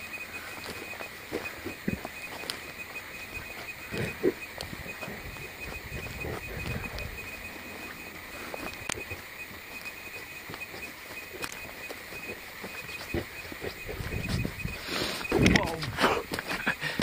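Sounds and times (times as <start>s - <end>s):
footsteps through twigs and moss: 0.0s - 16.7s
dog panting and snuffling: 3.3s - 9.2s, 12.2s - 15.3s.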